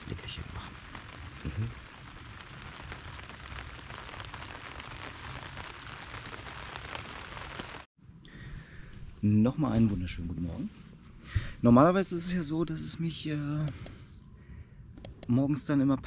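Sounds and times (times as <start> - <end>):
rain on a tent: 0.0 - 7.9.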